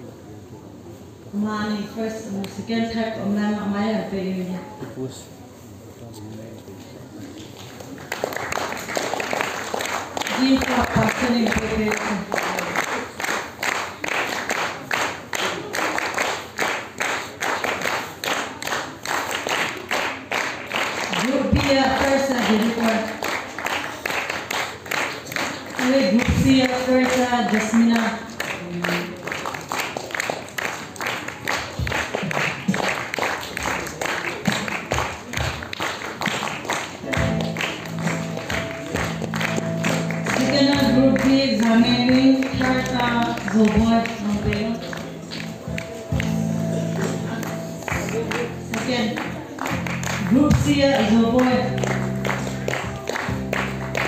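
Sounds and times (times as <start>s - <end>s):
audience clapping in unison: 7.3s - 54.0s
music with long held notes: 37.1s - 43.0s, 44.7s - 54.0s.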